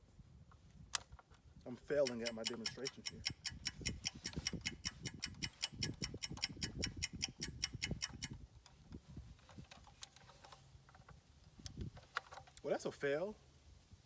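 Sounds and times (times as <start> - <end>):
rapid even ticking: 1.9 - 8.4.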